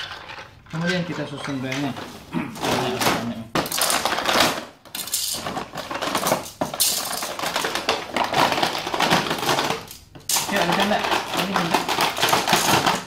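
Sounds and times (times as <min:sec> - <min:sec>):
plastic track pieces clattering: 0:00.0 - 0:13.0
plastic packaging crackling: 0:05.4 - 0:13.0.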